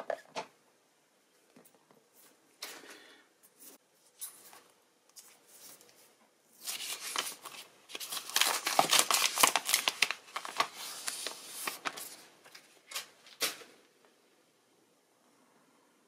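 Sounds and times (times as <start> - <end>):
plastic film peeling and crackling: 6.6 - 13.6.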